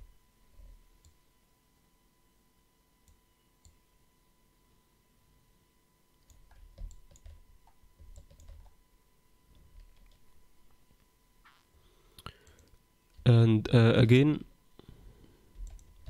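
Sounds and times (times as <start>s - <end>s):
faint steady tone: 0.0s - 16.0s
computer mouse clicks: 6.2s - 8.8s, 12.2s - 13.2s, 15.6s - 16.0s.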